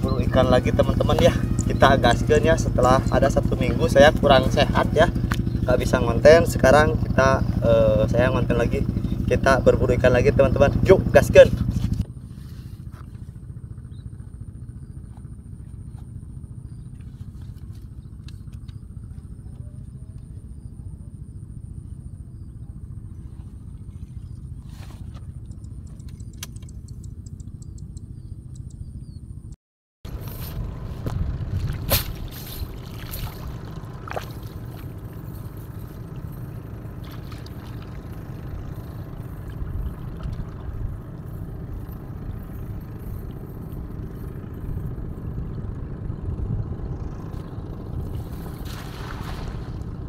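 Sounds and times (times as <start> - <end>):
steady low rumble: 0.0 - 50.0
light water sounds: 31.0 - 41.4, 48.1 - 49.9.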